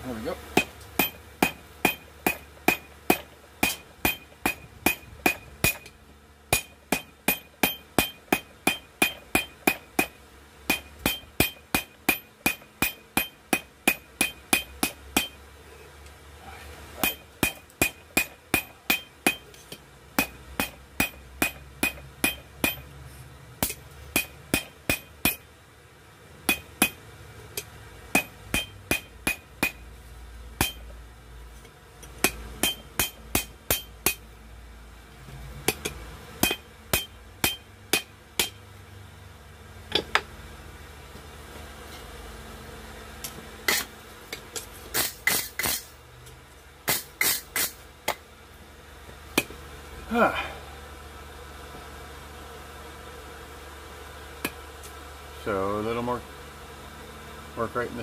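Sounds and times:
hammer blows on hot steel: 0.5 - 5.9, 32.2 - 34.2, 44.9 - 45.9.

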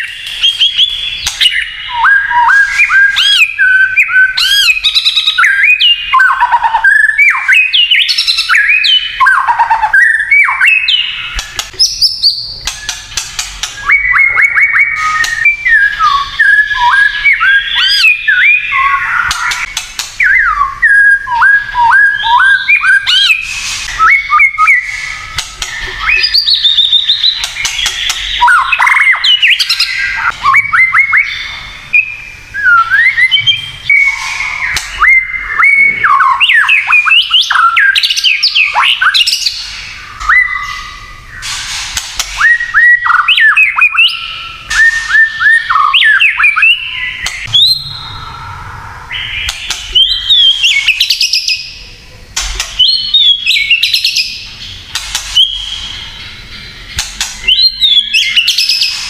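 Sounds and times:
bird singing whistled notes: 0.0 - 41.6, 42.4 - 51.8, 52.6 - 59.0
bird clicking and crackling notes: 11.3 - 14.4, 19.2 - 20.3, 25.2 - 28.7, 54.9 - 55.8.

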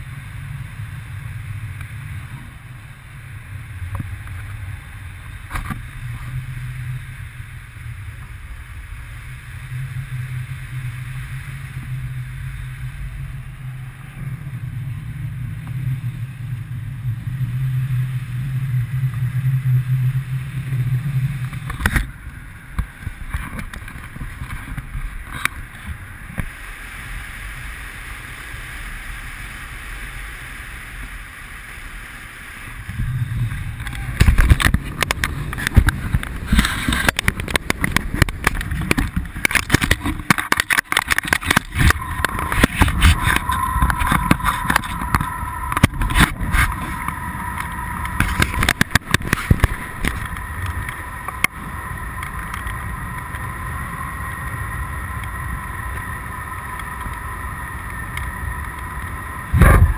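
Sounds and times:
wind buffeting microphone: 32.7 - 59.9.

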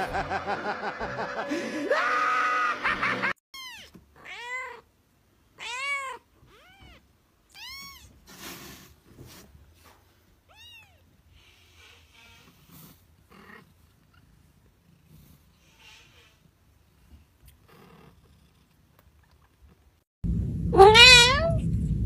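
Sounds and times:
woman laughing loudly: 0.0 - 3.4.

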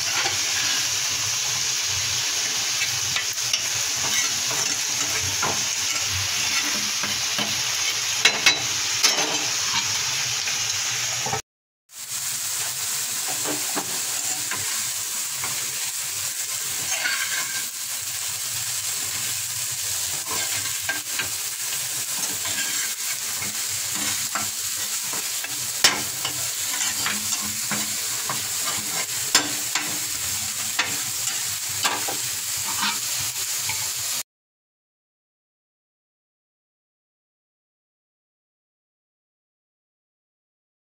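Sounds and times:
spatula scraping a pan: 0.0 - 11.4, 13.1 - 34.2
food sizzling in a frying pan: 0.0 - 34.2.

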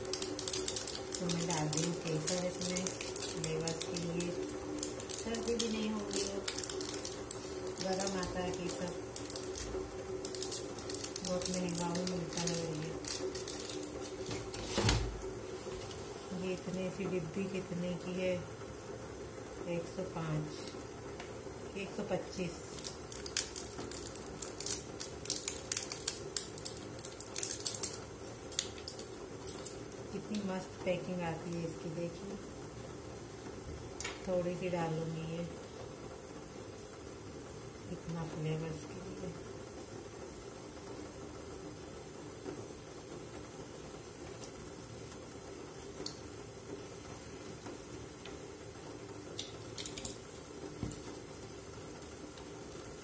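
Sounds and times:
plastic box clicking and crackling: 0.0 - 14.5, 22.8 - 29.8.

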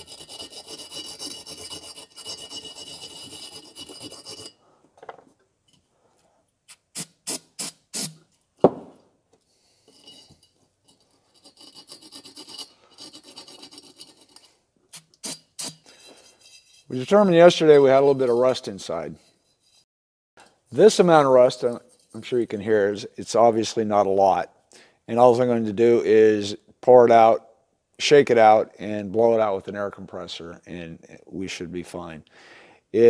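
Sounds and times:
brush scrubbing inside metal tank: 0.0 - 4.6
knock: 8.6 - 9.0.

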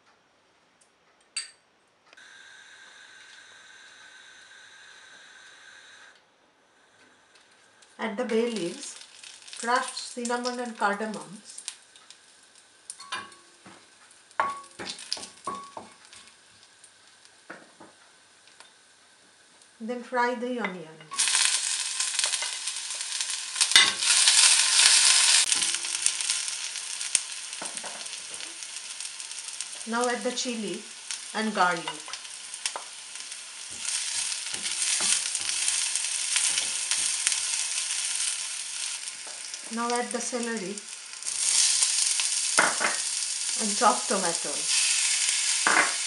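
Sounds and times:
spices sizzling in oil: 2.2 - 6.1, 6.8 - 46.0
utensil scraping a wok: 21.1 - 29.9, 30.9 - 39.8, 40.8 - 46.0.

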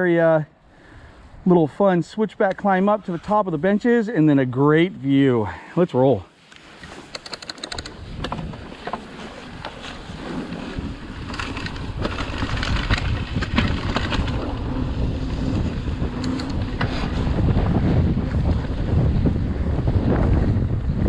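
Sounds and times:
bike tyre rumble: 6.6 - 21.0
bike clicks and rattles: 6.7 - 10.0, 10.6 - 19.1
wind buffeting microphone: 7.2 - 8.9, 9.5 - 21.0.

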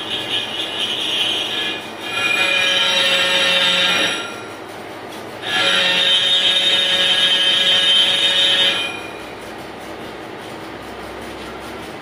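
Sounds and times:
lathe tool screeching on metal: 0.0 - 9.4
lathe running quietly: 0.0 - 12.0.

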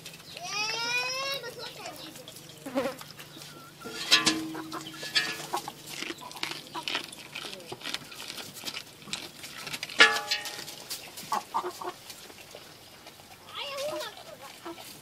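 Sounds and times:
low steady hum: 0.0 - 13.5
chicken calling: 0.4 - 7.1, 11.1 - 14.9.

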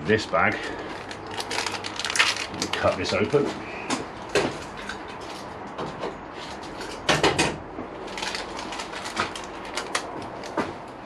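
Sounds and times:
plastic bag crinkling: 0.6 - 3.4, 8.0 - 10.6.

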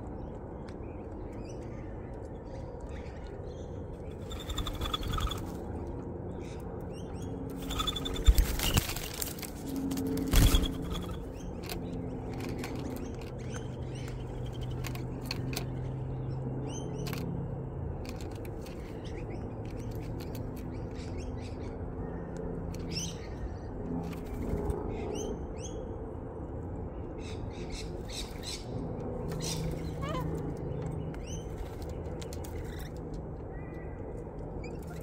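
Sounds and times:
birds pecking seed: 0.0 - 21.4, 29.2 - 35.0
birds chirping: 0.0 - 26.0, 26.9 - 35.0
steady low hum: 0.0 - 35.0.

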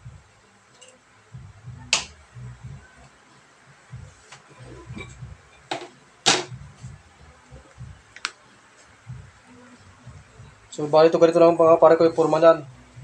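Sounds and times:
faint low bumps: 3.9 - 5.7, 6.5 - 8.1.

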